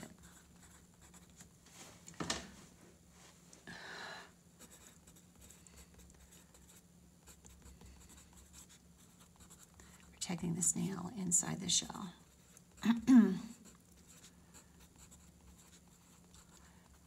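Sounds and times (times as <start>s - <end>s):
pencil scratching on paper: 4.6s - 9.8s, 12.2s - 17.0s.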